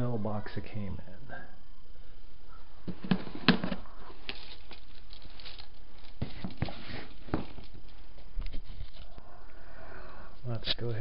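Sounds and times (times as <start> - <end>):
handling clicks knocks and rustles: 2.9 - 9.0.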